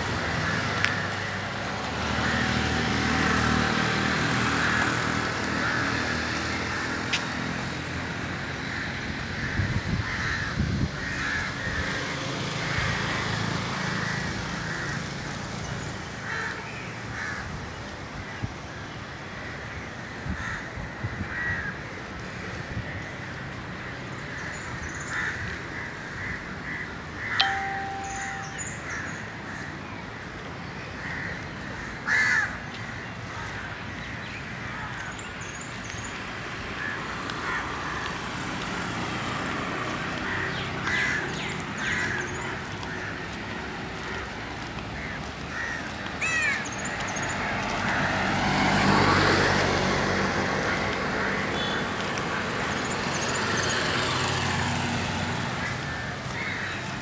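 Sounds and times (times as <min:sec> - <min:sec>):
outdoor background noise: 0:00.0 - 0:57.0
vehicle passing: 0:36.3 - 0:57.0
birds calling: 0:40.0 - 0:49.7.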